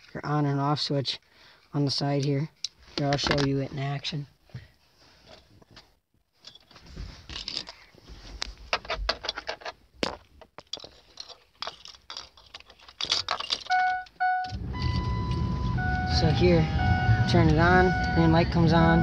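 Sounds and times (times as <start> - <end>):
keys jangling: 10.7 - 14.1
truck engine rumbling: 13.3 - 19.0
dashboard warning chime beeping: 13.7 - 19.0.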